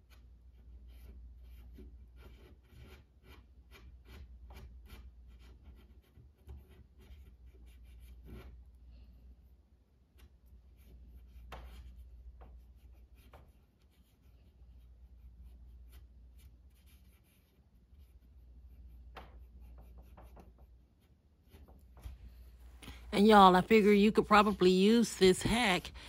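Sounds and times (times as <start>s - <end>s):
cotton swab scratchy rubbing: 0.0s - 8.8s, 10.2s - 26.0s
low steady hum: 22.1s - 26.0s.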